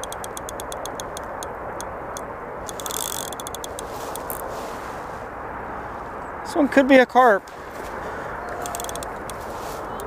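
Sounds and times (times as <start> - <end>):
fishing reel clicking: 0.0 - 4.4, 8.6 - 9.5.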